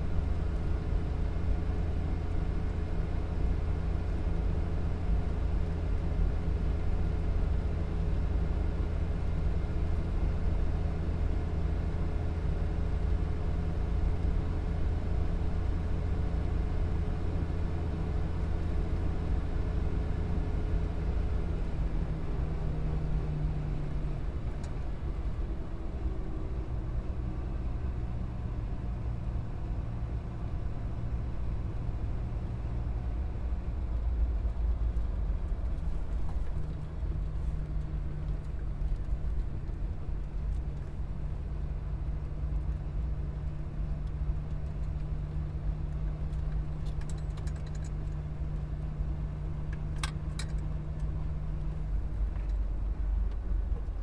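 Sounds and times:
car road and engine drone: 0:00.0 - 0:54.0.

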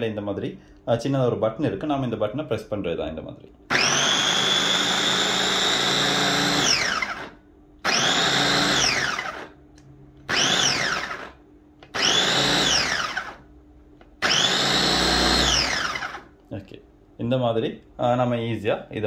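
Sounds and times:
food chopper motor whining: 0:03.7 - 0:09.6, 0:10.3 - 0:13.5, 0:14.2 - 0:16.4.

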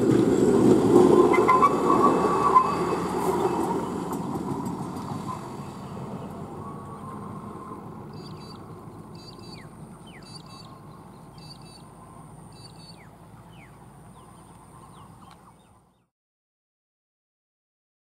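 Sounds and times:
truck rumbling on railway track: 0:00.0 - 0:16.0
downward-sliding bird whistles: 0:01.3 - 0:03.7
bird double chirp: 0:08.1 - 0:11.9, 0:12.5 - 0:13.7.

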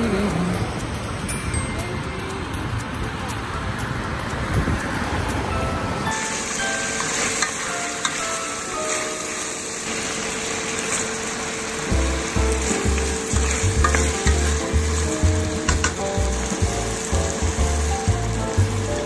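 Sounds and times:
background music with steady beat: 0:00.0 - 0:09.9, 0:11.8 - 0:19.0
chicken sizzling in oil: 0:06.1 - 0:19.0.

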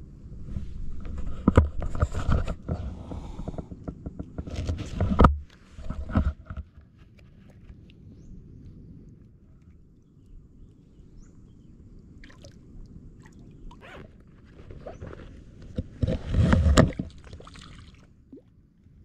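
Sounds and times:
fish splashing in shallow water: 0:12.2 - 0:18.5.

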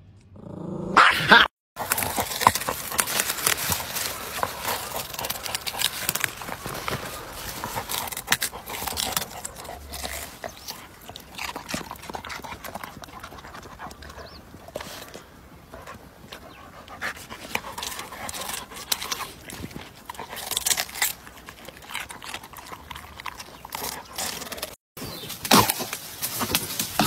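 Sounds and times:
dirt scraping and crumbling: 0:01.8 - 0:27.0
dog digging in soil: 0:01.8 - 0:27.0.

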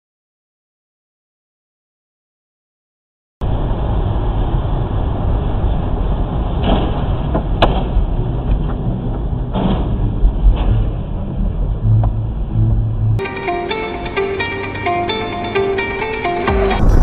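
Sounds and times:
tyre and engine rumble: 0:03.4 - 0:13.2, 0:16.5 - 0:17.0.

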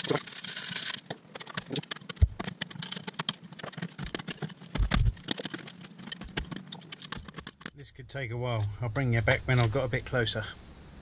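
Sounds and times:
wire brush scratching bark: 0:00.0 - 0:07.6
low steady hum: 0:00.0 - 0:11.0
dull knocks: 0:02.2 - 0:02.6.

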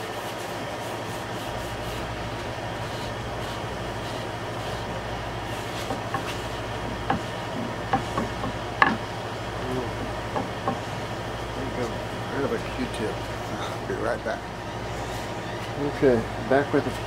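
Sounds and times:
rag rubbing on wood: 0:00.0 - 0:09.1
steady mechanical hum: 0:00.0 - 0:17.0
sharp clicks and knocks: 0:07.0 - 0:09.1, 0:10.3 - 0:10.8.

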